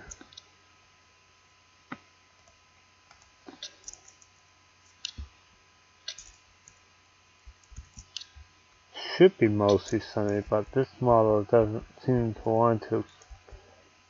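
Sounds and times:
faint steady hum: 0.0 - 14.0
computer mouse clicking: 6.1 - 6.8, 7.5 - 8.4.

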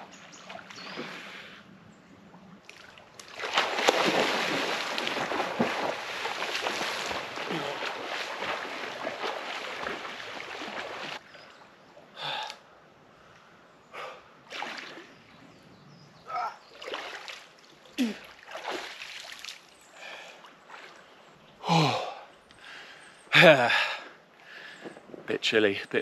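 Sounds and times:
water splashing: 2.6 - 11.2, 14.5 - 15.2, 16.7 - 19.8
man gasping and sighing: 7.4 - 7.9, 12.2 - 12.6, 13.9 - 14.3, 18.0 - 18.3, 21.6 - 22.8, 23.4 - 24.8.

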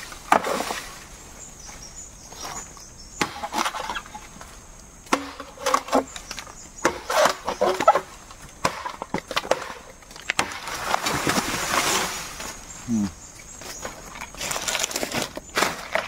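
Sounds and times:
bamboo cracking and splintering: 5.1 - 12.5, 13.6 - 16.0.

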